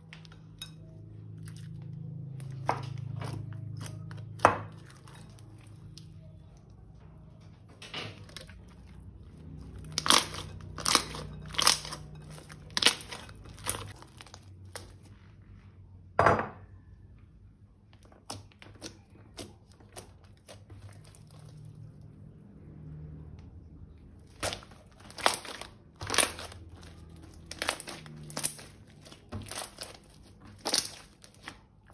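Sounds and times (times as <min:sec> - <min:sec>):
crunchy slime crackling: 0:08.1 - 0:15.1, 0:18.0 - 0:22.0, 0:24.0 - 0:31.9.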